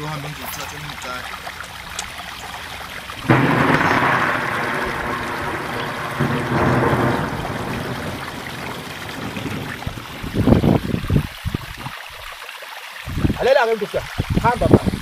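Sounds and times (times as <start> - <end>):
thunder clap rumbling: 0.0 - 11.7.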